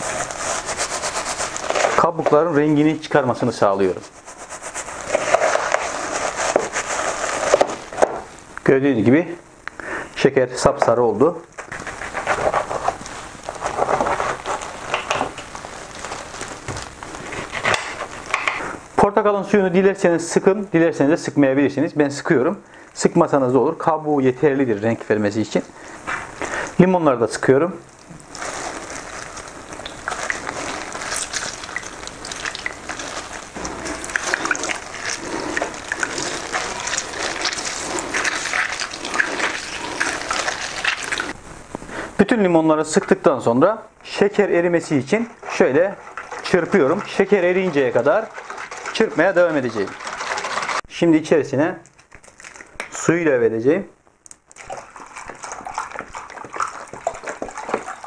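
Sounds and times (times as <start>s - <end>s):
juice splashing into bowl: 25.1s - 41.4s, 44.0s - 50.9s, 51.8s - 53.0s, 54.2s - 58.0s
wet squelches of pulp: 27.8s - 41.4s, 44.0s - 50.9s, 51.8s - 53.0s, 54.2s - 58.0s.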